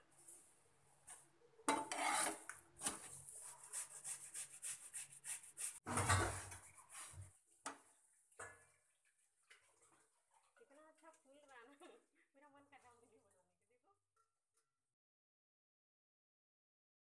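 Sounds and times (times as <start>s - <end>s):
pan clattering on burner: 1.7s - 3.0s, 5.9s - 6.6s
utensils scraping on a pan: 1.7s - 7.2s.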